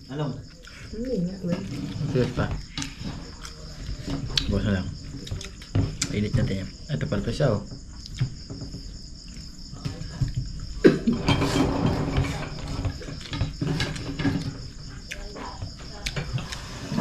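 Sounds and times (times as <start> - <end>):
crickets chirping: 0.0 - 17.0
clinks of eating from a plate: 1.6 - 6.5, 9.8 - 14.8.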